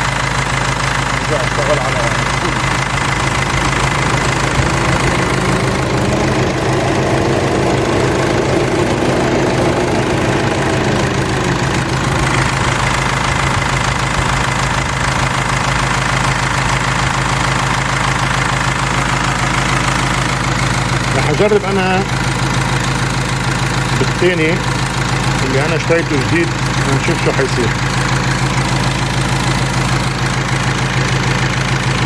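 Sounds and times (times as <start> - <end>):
diesel engine idling: 0.0 - 32.0
radiator cooling fan whirring: 1.3 - 16.8.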